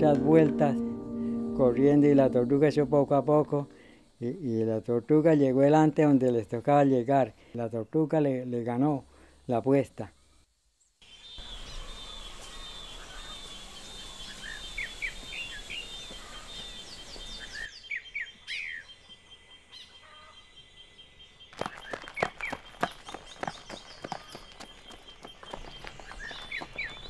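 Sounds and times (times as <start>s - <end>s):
birds chirping: 11.1s - 27.0s
running footsteps on dirt road: 15.2s - 17.5s, 21.5s - 27.0s.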